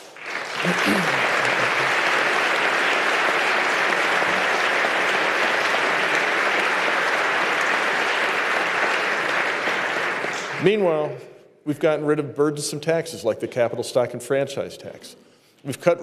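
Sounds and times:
audience applause: 0:00.0 - 0:11.0.

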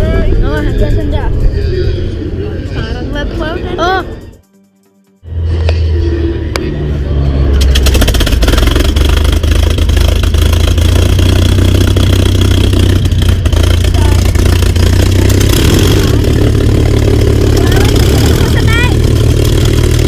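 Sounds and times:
aircraft engine idling loudly: 0:07.6 - 0:20.0.

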